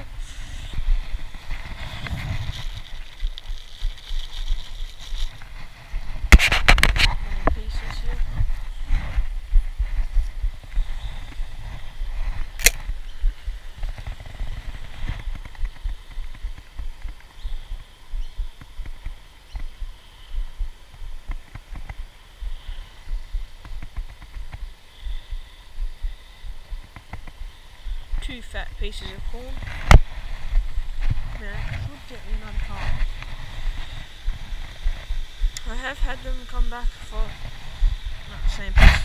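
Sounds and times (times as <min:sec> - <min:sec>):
low thuds and rumble on microphone: 0:00.0 - 0:04.3, 0:05.1 - 0:39.0
sharp click: 0:12.6 - 0:12.9.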